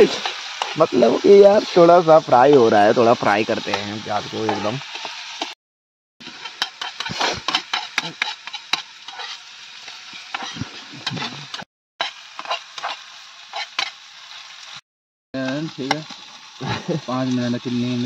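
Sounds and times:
metal spatula scraping a pan: 0.0 - 1.0, 2.4 - 5.6, 6.2 - 14.5
onions sizzling in a pan: 0.0 - 5.6, 6.2 - 14.8, 15.4 - 18.0.

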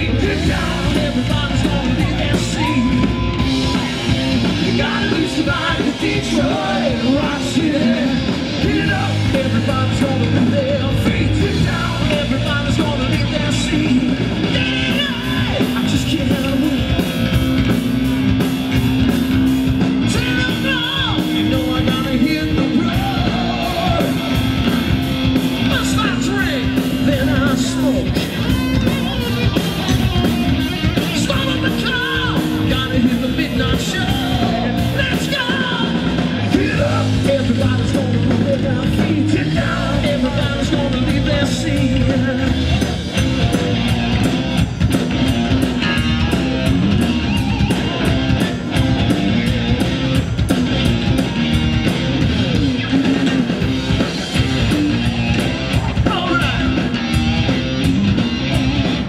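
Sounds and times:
person singing: 0.0 - 17.1, 20.1 - 24.5, 25.6 - 42.8
bass guitar: 0.0 - 59.0
drum kit: 0.0 - 59.0
electric guitar: 0.0 - 59.0.

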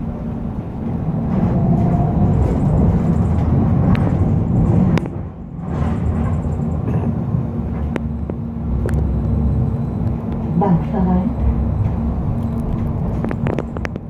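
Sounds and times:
tram rumbling on rails: 0.0 - 14.0.

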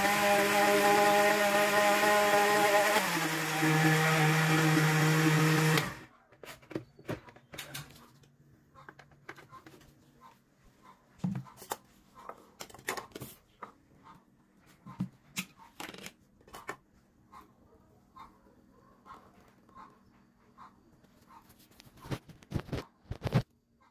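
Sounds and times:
blender running: 0.0 - 6.1.

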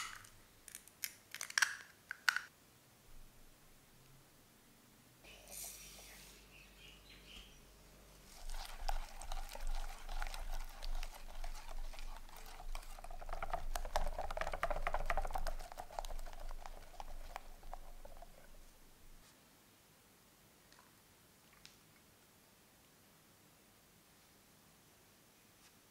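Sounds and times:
whisk beating in glass bowl: 8.3 - 18.7.

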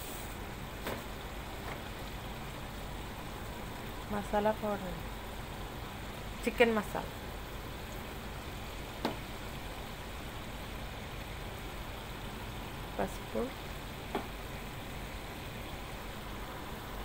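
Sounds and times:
food hissing in a pot: 0.0 - 1.0.

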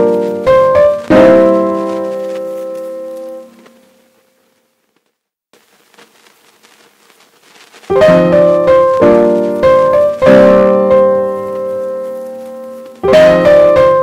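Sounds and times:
piano chords: 0.0 - 4.2, 7.9 - 14.0.

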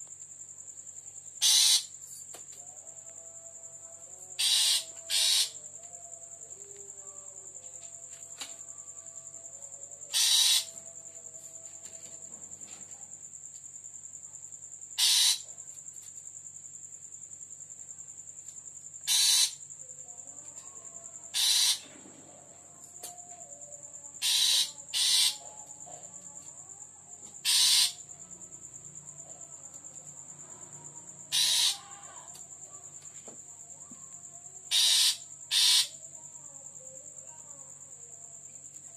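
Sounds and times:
cricket trill: 0.0 - 38.9
bird giving harsh grating calls: 1.4 - 1.9, 4.4 - 5.6, 10.1 - 10.7, 15.0 - 15.4, 19.1 - 19.6, 21.3 - 21.8, 24.2 - 25.4, 27.4 - 28.0, 31.3 - 31.9, 34.7 - 35.9.

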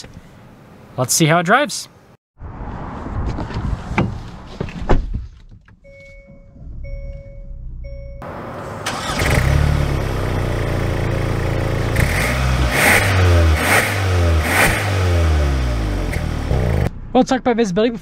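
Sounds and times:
dashboard warning chime beeps: 5.8 - 8.2
engine starting and running: 5.8 - 17.1.

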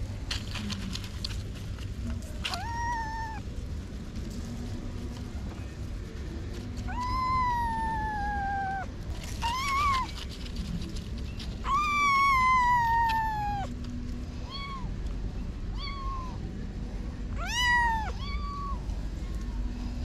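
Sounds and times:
kitten meowing: 2.5 - 3.4, 6.9 - 10.2, 11.6 - 13.7, 14.4 - 14.9, 15.7 - 16.4, 17.4 - 18.8.

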